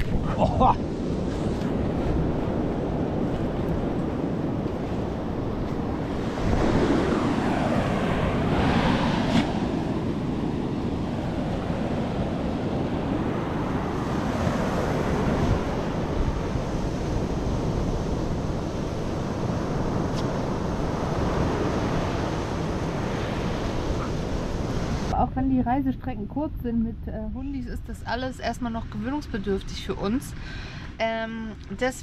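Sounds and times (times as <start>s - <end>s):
surf breaking on beach: 0.0s - 25.1s
wind rumbling on microphone: 0.0s - 32.0s.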